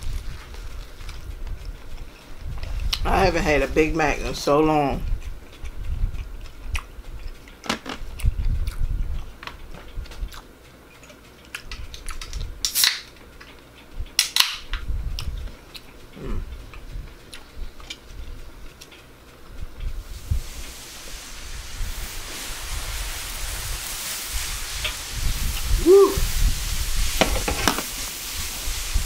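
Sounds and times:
person chewing food: 0:05.0 - 0:12.6, 0:15.0 - 0:20.0
sharp mouth noises: 0:15.1 - 0:18.0.

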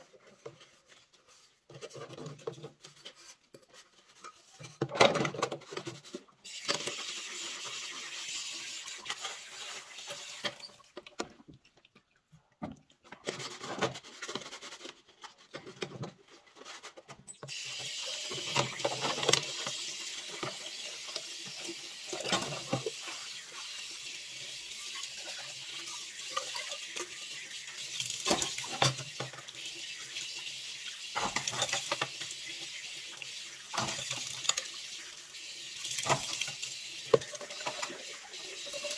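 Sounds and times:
tap water running into sink: 0:06.5 - 0:11.0, 0:17.4 - 0:38.9
cookware clattering against basin: 0:31.2 - 0:32.2.

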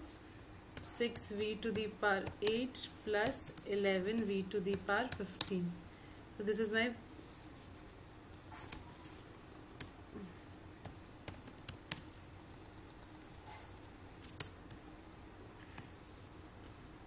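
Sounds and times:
computer keystrokes and clicks: 0:00.7 - 0:05.6, 0:08.3 - 0:09.2, 0:09.8 - 0:10.0, 0:10.8 - 0:13.4, 0:14.2 - 0:14.8, 0:15.6 - 0:16.0.

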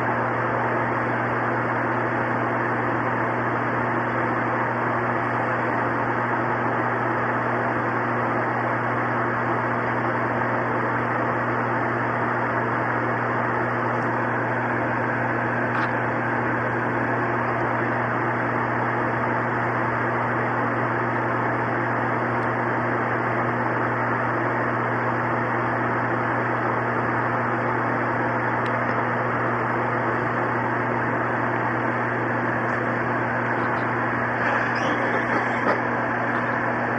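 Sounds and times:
steady hum: 0:00.0 - 0:36.9.

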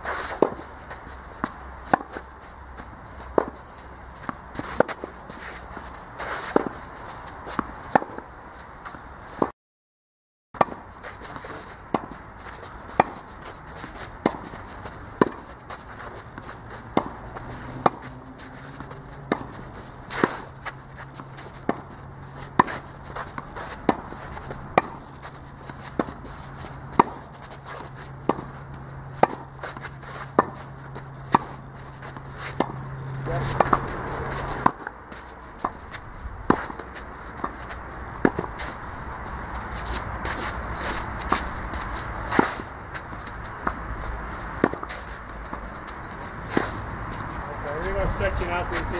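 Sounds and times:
tennis ball struck by rackets: 0:00.1 - 0:02.3, 0:03.3 - 0:03.6, 0:04.2 - 0:08.3, 0:10.6 - 0:48.9
ball bouncing on clay: 0:32.1 - 0:38.6.

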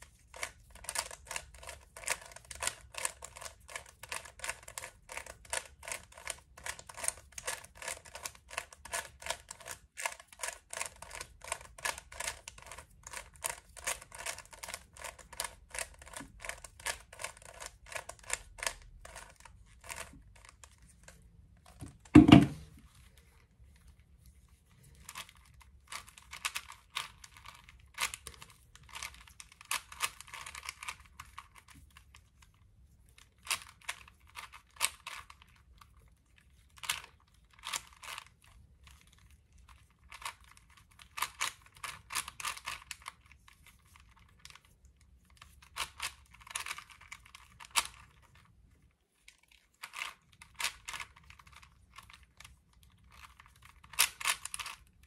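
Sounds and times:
plastic puzzle cube clicking: 0:00.3 - 0:21.2, 0:25.0 - 0:32.1, 0:36.7 - 0:38.3, 0:40.0 - 0:43.3, 0:45.4 - 0:48.3, 0:49.8 - 0:55.0.

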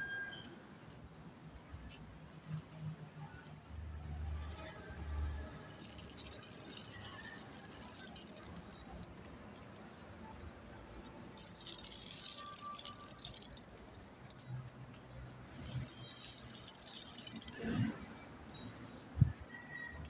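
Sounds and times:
toy wheels rattling on concrete: 0:05.7 - 0:20.0.

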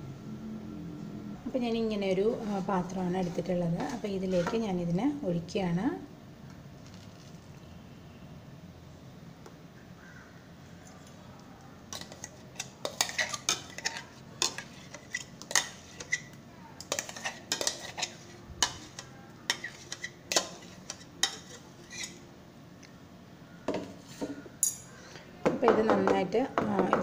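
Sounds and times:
spoon scraping bowl and tin: 0:02.3 - 0:04.8, 0:11.9 - 0:22.2.

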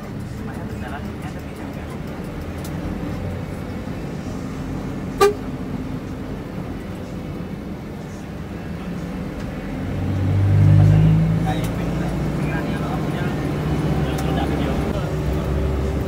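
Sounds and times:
bus diesel engine running: 0:00.0 - 0:16.0
short horn toot: 0:05.2 - 0:05.5.

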